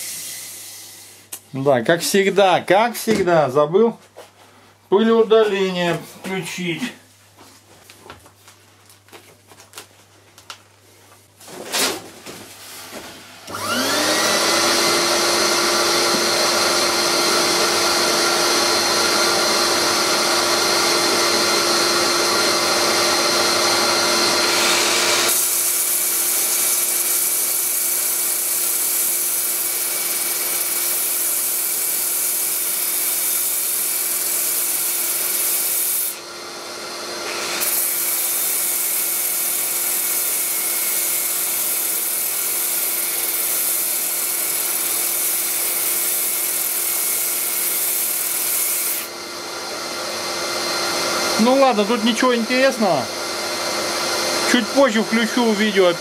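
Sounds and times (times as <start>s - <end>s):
dust extractor motor humming: 13.2s - 56.0s
sanding disc hissing on wood: 37.4s - 49.1s.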